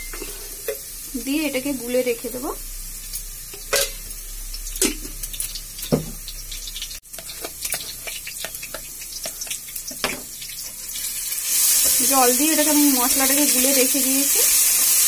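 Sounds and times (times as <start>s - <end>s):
spoon stirring spice paste: 6.7s - 10.9s.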